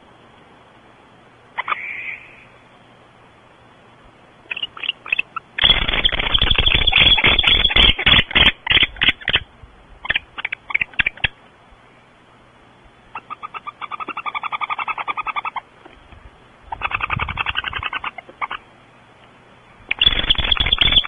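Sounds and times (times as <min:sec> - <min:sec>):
owl twittering call: 0:01.5 - 0:02.6, 0:04.5 - 0:11.4, 0:13.1 - 0:15.7, 0:16.7 - 0:18.7, 0:19.8 - 0:21.0.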